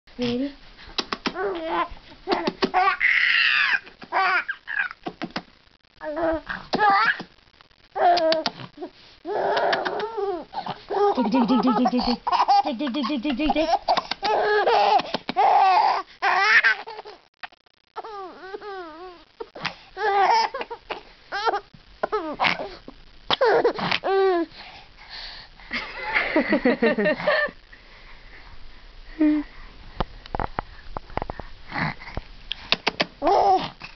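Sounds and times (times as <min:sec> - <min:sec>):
baby laughing and squealing: 0:01.4 - 0:05.0, 0:06.2 - 0:07.3, 0:09.3 - 0:17.2, 0:20.0 - 0:22.8.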